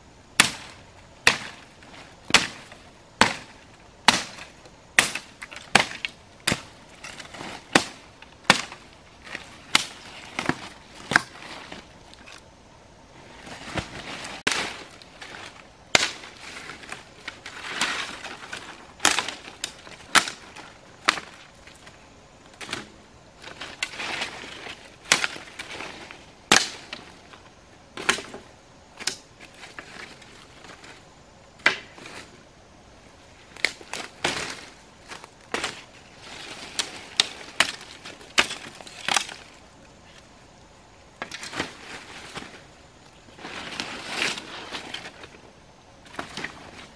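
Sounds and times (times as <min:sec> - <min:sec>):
rustling leaves and branches: 0:00.0 - 0:46.9
machete chopping brush: 0:00.4 - 0:01.7, 0:02.3 - 0:08.8, 0:15.9 - 0:16.4, 0:19.0 - 0:20.4.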